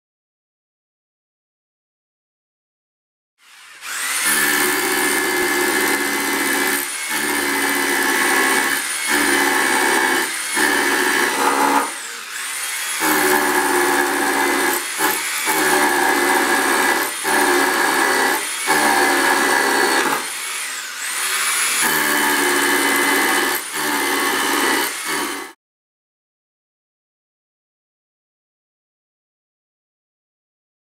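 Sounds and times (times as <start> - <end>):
rotary hammer drilling concrete: 3.4 - 25.6.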